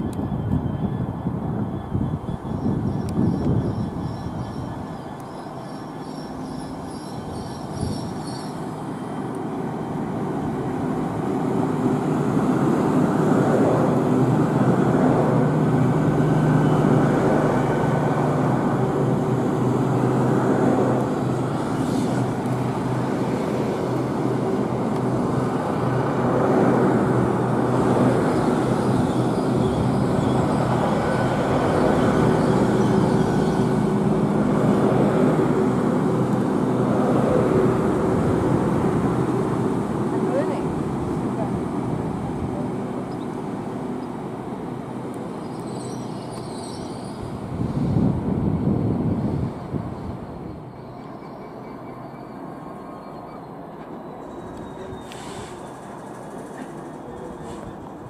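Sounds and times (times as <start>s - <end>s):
diesel train engine drone: 0.0s - 58.0s
wheels on rails: 53.7s - 58.0s.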